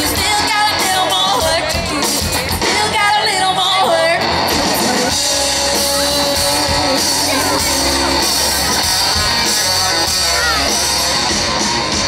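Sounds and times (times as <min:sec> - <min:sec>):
person singing: 0:00.0 - 0:08.7
rock band playing: 0:00.0 - 0:12.0.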